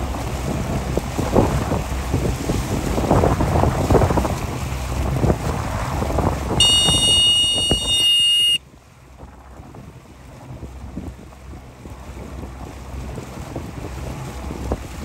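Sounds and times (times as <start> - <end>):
wind buffeting microphone: 0.0 - 8.0, 9.0 - 15.0
choppy water splashing: 0.0 - 15.0
steady high-pitched tone: 6.6 - 8.6.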